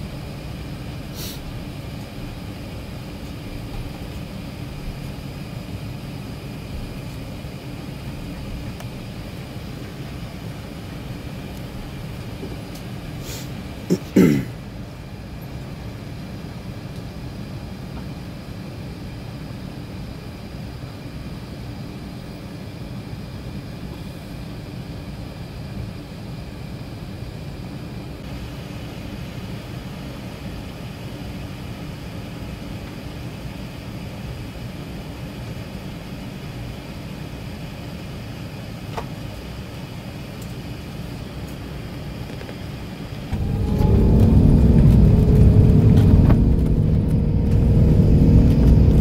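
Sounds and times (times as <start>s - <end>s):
aircraft cabin rumble: 0.0s - 16.6s, 38.3s - 49.0s.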